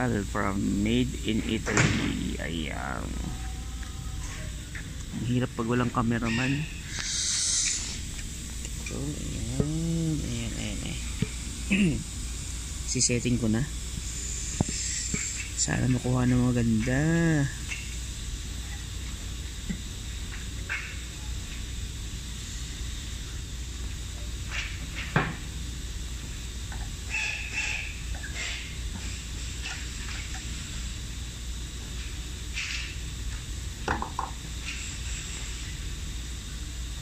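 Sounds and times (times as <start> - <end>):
steady low hum: 0.0 - 37.0.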